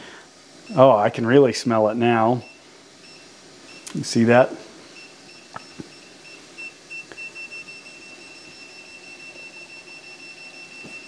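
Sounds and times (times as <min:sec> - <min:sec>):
gas detector alarm beeping: 0:02.2 - 0:03.9, 0:05.0 - 0:11.0.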